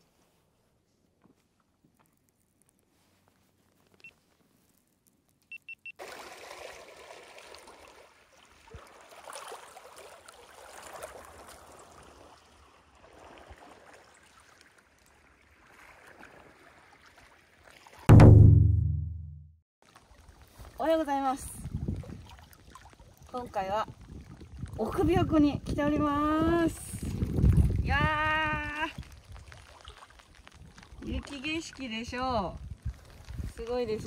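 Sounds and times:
water lapping on rocky shore: 6.0 - 18.1, 19.8 - 34.0.

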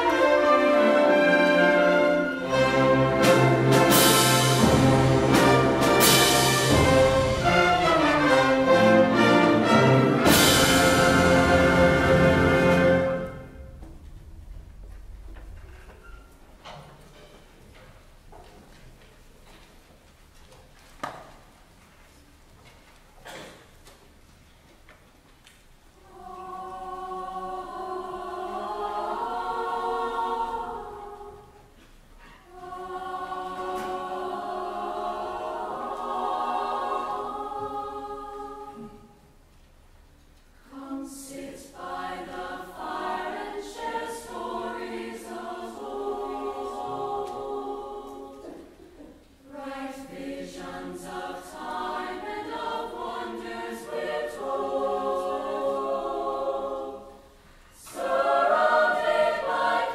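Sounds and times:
choir singing held chords: 0.0 - 13.9, 25.9 - 39.4, 40.6 - 59.9.

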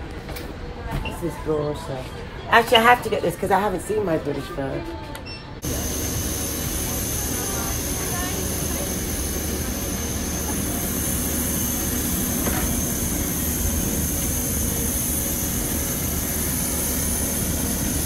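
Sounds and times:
high-pitched turbine whine: 5.6 - 18.0
jet turbine roaring: 5.6 - 18.0.

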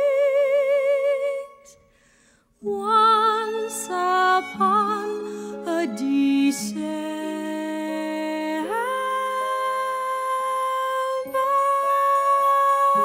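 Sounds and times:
soft orchestral accompaniment: 2.6 - 13.0.

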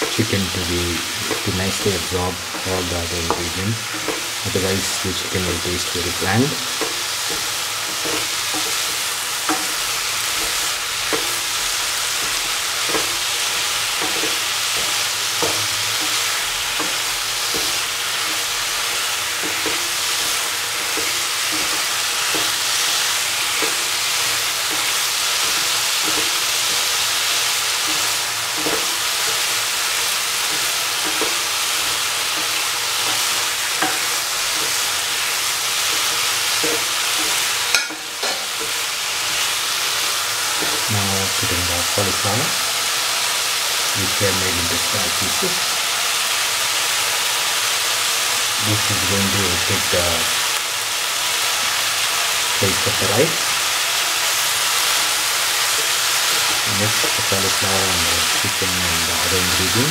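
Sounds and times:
spoon knocking and scraping pan: 0.0 - 40.9
chicken sizzling in oil: 0.0 - 59.9.

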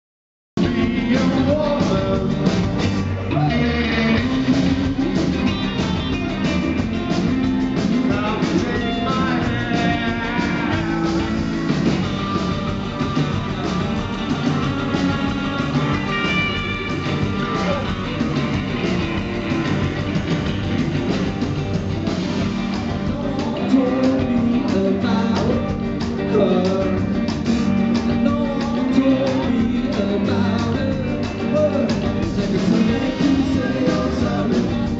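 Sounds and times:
person singing: 0.6 - 6.6, 7.8 - 19.9, 22.6 - 34.9
bass: 0.6 - 34.9
drums: 0.6 - 34.9
electric guitars: 0.6 - 34.9.

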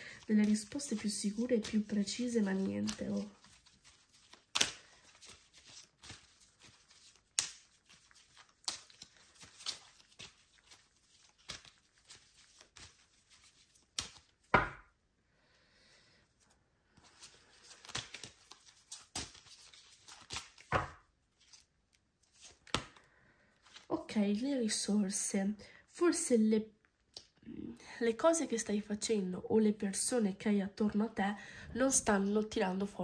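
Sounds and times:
cards being shuffled: 0.0 - 14.9, 17.0 - 23.9.

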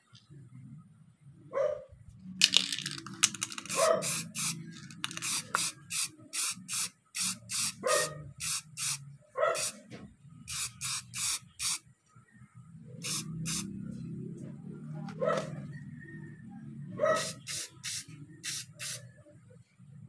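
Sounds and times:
spray paint can bursts: 2.4 - 7.8, 8.4 - 9.0, 9.6 - 9.8, 10.5 - 11.8, 13.0 - 13.7, 17.2 - 19.0.

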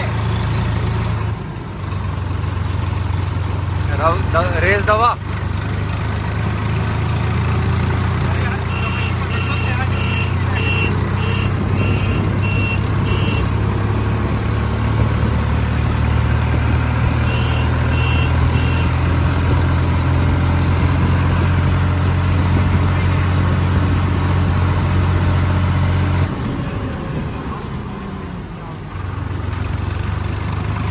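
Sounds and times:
tractor diesel engine running: 0.0 - 30.9
short high beeps: 8.7 - 13.4, 17.2 - 18.9.

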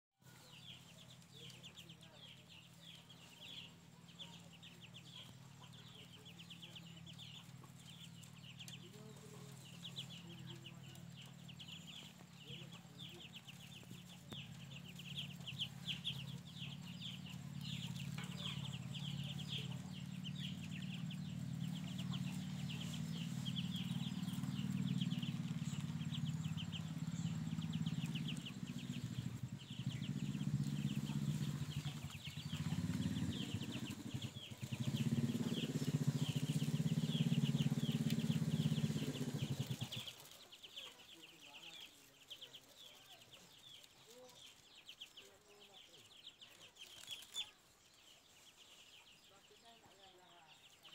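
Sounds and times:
ducklings peeping: 0.2 - 50.9
low rumble: 5.0 - 40.1.

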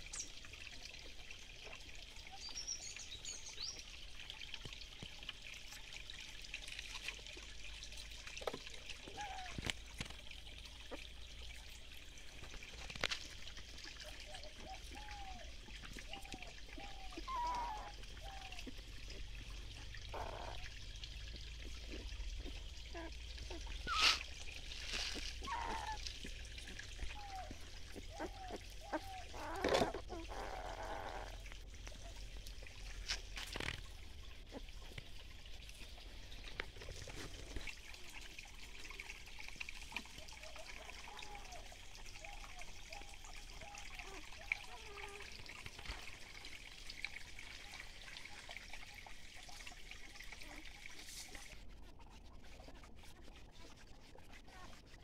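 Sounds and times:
stream trickling over rocks: 0.0 - 55.0
puppies whimpering: 14.0 - 18.8, 20.1 - 20.7, 21.9 - 24.3, 25.0 - 32.2.

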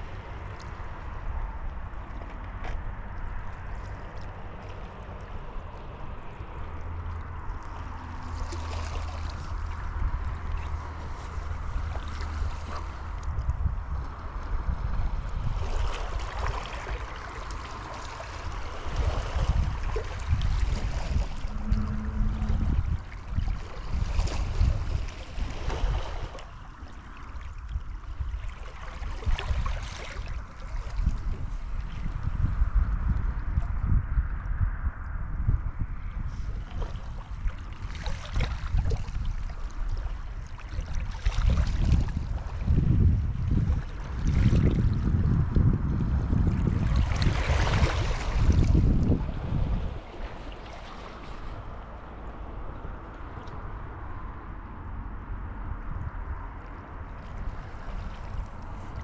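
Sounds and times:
wind rumble on microphone: 0.0 - 59.0
surf washing on beach: 4.8 - 27.6, 46.2 - 54.2.

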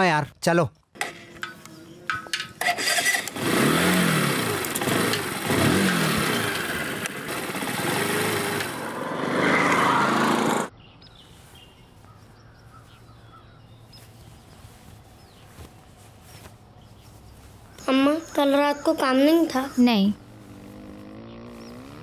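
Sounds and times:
quiet outdoor background: 0.0 - 22.0
motorcycle engine revving: 1.0 - 10.7, 20.2 - 22.0.

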